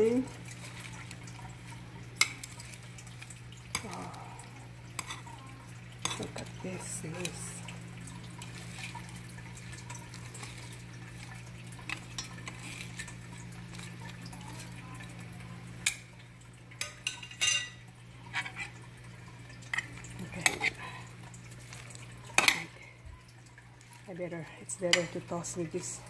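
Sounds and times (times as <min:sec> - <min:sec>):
salad greens rustling: 0:00.0 - 0:04.4, 0:05.0 - 0:15.1, 0:19.6 - 0:22.9.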